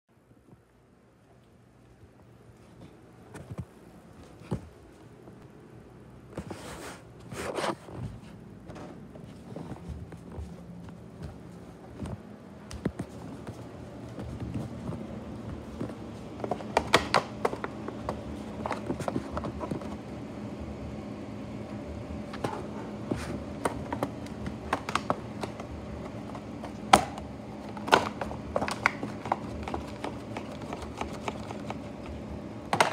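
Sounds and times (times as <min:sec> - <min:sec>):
faint steady hum: 0:00.1 - 0:32.9
plastic box clicking and crackling: 0:16.4 - 0:19.9, 0:23.6 - 0:25.7, 0:26.3 - 0:32.9.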